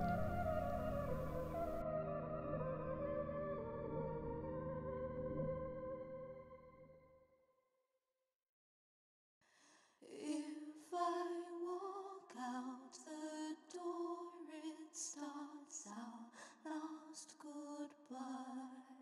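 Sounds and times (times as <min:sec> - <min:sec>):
woman singing softly: 0:10.0 - 0:19.0.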